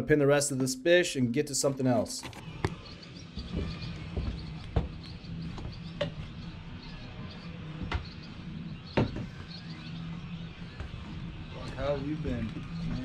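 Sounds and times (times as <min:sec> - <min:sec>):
low machine hum: 0:02.4 - 0:13.0
knocks on boat deck: 0:09.0 - 0:09.4.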